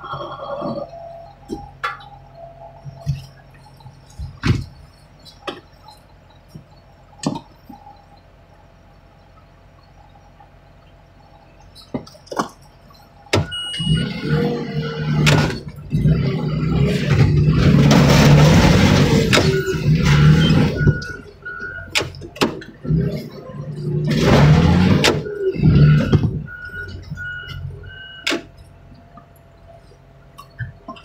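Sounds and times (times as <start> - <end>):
heavy machine engine working: 0.0 - 31.0
metal knocks and clanks: 2.8 - 7.9, 15.1 - 27.3.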